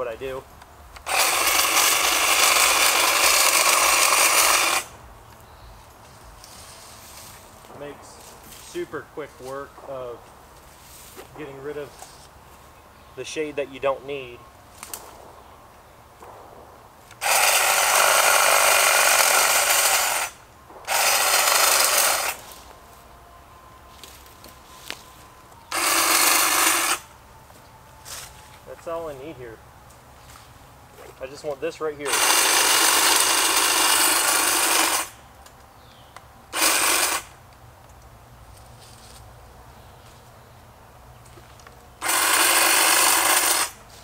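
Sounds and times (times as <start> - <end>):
hedge trimmer cutting branches: 1.0 - 5.0, 17.0 - 22.8, 25.6 - 27.1, 31.2 - 35.2, 36.5 - 37.5, 41.9 - 44.0.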